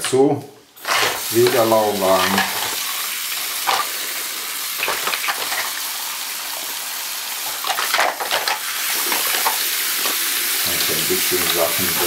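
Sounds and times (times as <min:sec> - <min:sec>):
tap water splashing into sink: 0:04.7 - 0:05.9.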